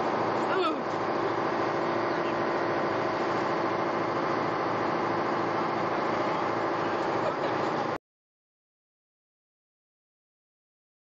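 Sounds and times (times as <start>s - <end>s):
boat engines droning: 0.0s - 8.0s.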